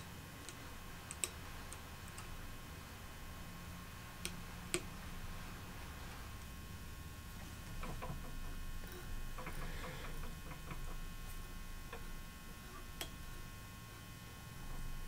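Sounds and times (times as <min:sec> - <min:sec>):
faint electrical hum: 0:00.0 - 0:15.0
small tools clicking and tapping: 0:00.4 - 0:02.3.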